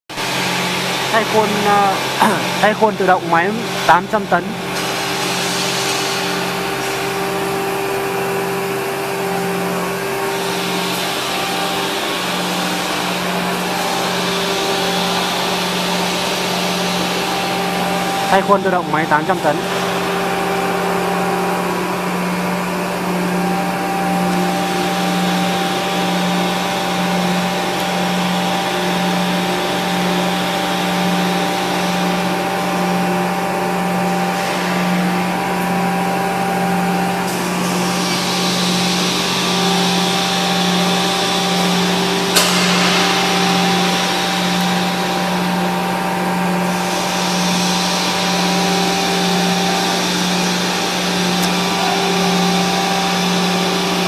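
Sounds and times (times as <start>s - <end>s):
stamping press machine hum: 0.2s - 54.0s
steady higher tones: 1.0s - 4.7s, 6.5s - 29.5s.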